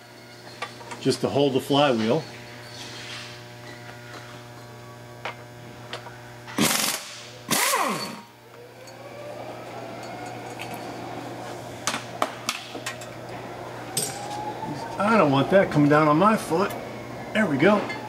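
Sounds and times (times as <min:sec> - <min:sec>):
impact wrench bursts: 0:06.6 - 0:08.4.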